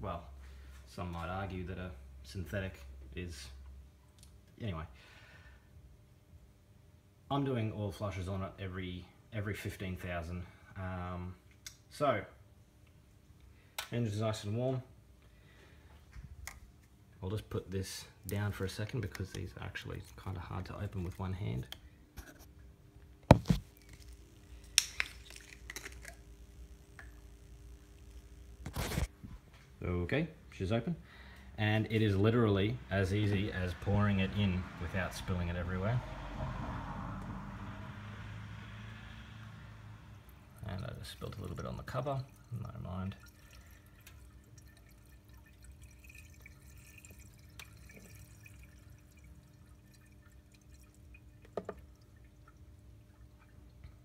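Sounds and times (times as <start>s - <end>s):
liquid trickling: 18.2s - 21.6s, 40.3s - 54.0s
plastic bottle cap cracking open: 23.3s - 26.2s.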